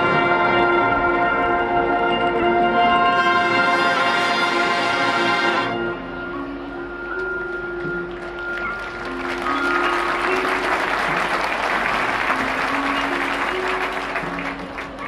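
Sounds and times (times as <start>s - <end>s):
marching band held notes: 0.0s - 15.0s
audience applauding: 7.8s - 15.0s.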